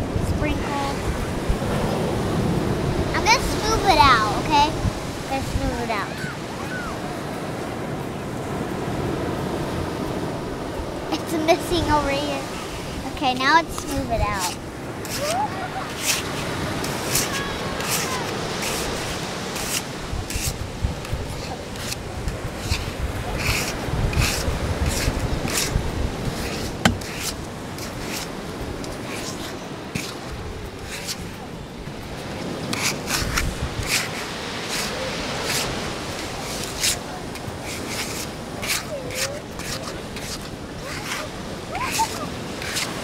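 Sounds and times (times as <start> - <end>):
surf washing: 0.0 - 43.0
plastic shovel scraping sand: 11.5 - 31.4, 32.2 - 43.0.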